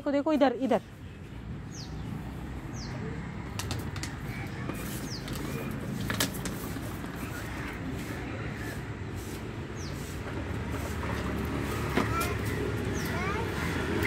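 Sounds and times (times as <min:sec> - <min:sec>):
bird chirping: 0:00.3 - 0:03.1, 0:09.8 - 0:10.1
plastic wheels rolling on pavers: 0:03.5 - 0:14.0.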